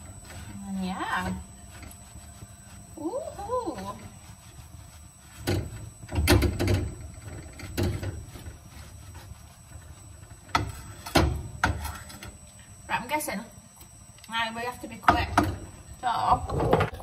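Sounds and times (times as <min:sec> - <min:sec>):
wooden spoon scraping a pan: 0:00.0 - 0:12.4.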